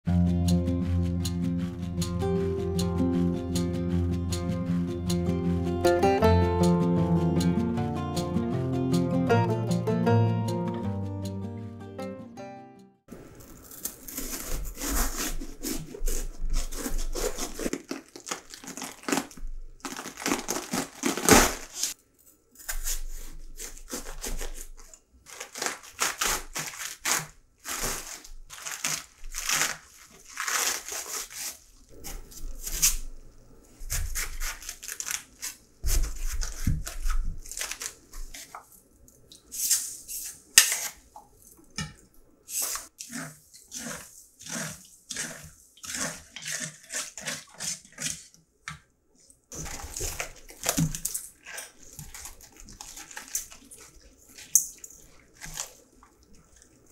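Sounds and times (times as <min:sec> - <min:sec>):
cabbage crunching and tearing: 0:13.1 - 0:33.2, 0:33.8 - 0:38.6, 0:42.5 - 0:48.3, 0:49.5 - 0:56.9.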